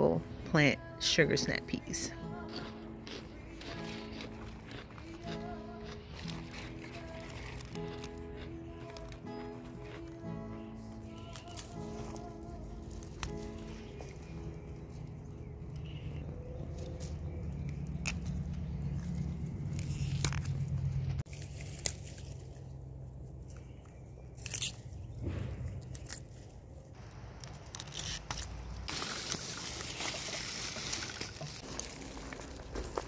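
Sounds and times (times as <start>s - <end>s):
leafy rustling: 3.4s - 25.1s, 25.9s - 33.0s
crisp snaps of stems: 11.1s - 14.2s, 16.6s - 18.9s.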